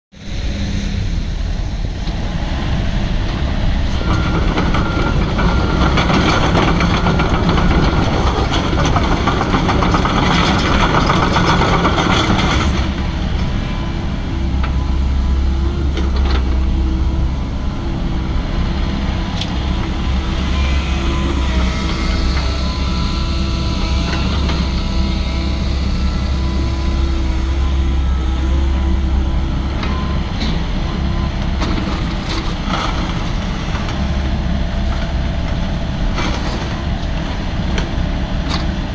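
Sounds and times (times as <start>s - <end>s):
excavator diesel engine running: 0.2s - 38.9s.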